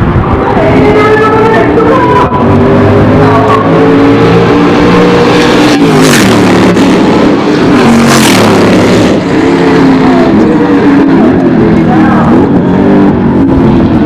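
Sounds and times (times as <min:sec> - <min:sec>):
race car engines revving: 0:00.0 - 0:14.0.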